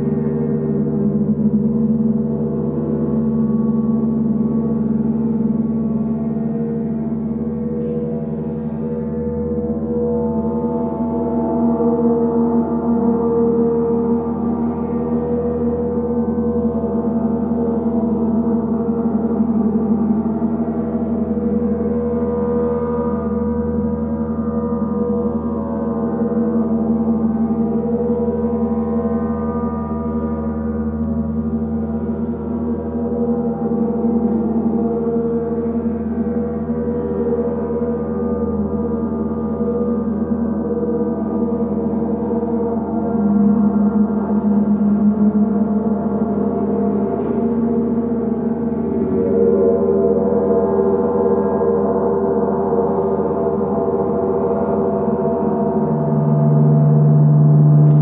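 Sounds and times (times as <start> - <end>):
gongs droning: 0.0 - 58.0.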